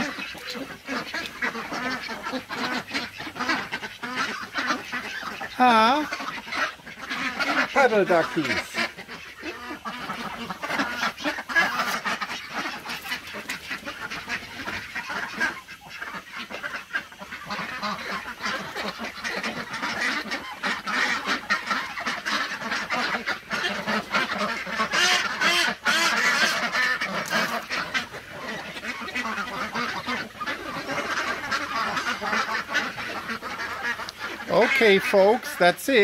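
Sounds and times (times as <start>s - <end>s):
ducks quacking: 0.0s - 36.0s.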